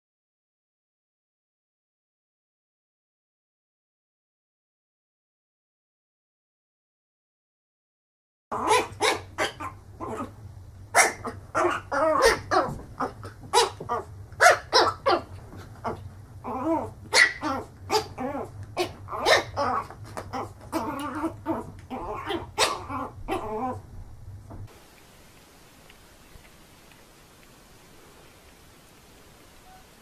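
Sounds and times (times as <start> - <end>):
puppy yapping: 8.5 - 10.3, 10.9 - 23.8.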